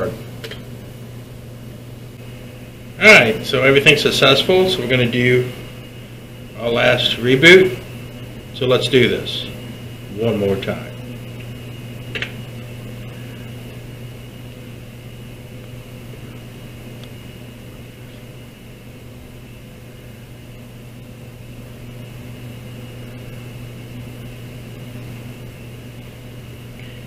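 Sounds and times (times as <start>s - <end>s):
computer fans humming: 0.0s - 27.0s.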